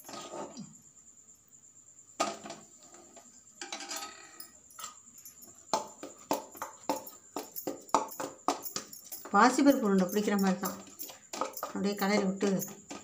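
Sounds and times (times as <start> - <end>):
metal spoon scraping steel bowl: 0.0 - 0.6, 8.2 - 13.0.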